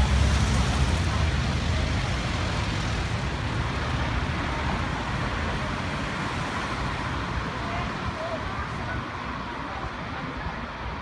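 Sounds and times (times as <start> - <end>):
traffic noise: 0.0 - 11.0.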